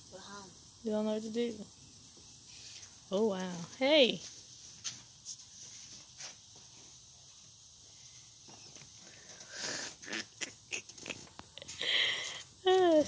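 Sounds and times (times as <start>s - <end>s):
short hiss of noise: 2.5s - 3.0s, 7.9s - 10.2s.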